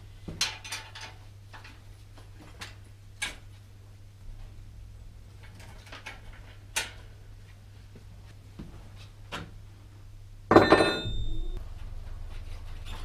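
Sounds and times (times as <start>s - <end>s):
metallic clatter with ringing: 10.5s - 11.6s.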